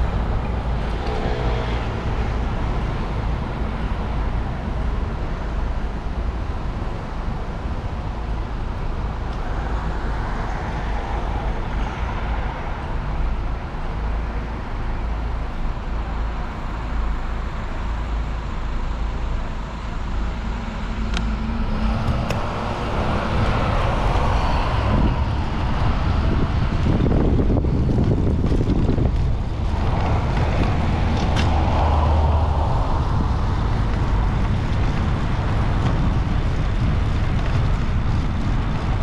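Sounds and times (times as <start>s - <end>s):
city street traffic: 0.0s - 39.0s
wind buffeting microphone: 19.4s - 39.0s.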